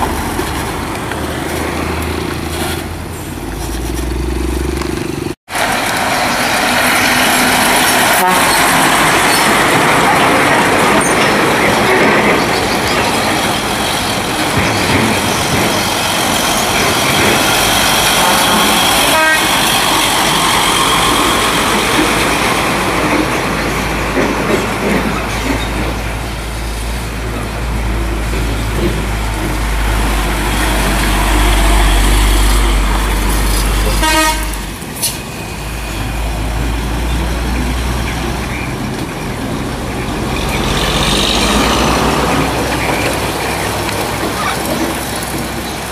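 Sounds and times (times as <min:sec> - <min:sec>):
truck diesel engine rumbling: 0:00.0 - 0:45.9
horn toots: 0:08.0 - 0:08.8, 0:18.3 - 0:19.8, 0:33.9 - 0:34.7.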